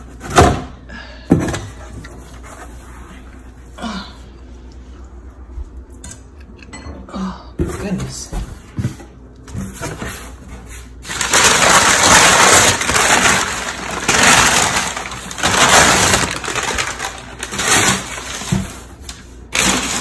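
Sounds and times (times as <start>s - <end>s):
packing paper crackling: 10.7s - 20.0s.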